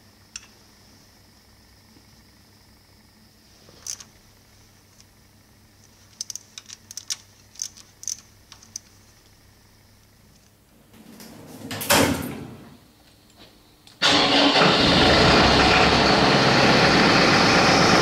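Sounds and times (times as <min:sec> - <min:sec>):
water jetting machine running: 0:14.0 - 0:18.0.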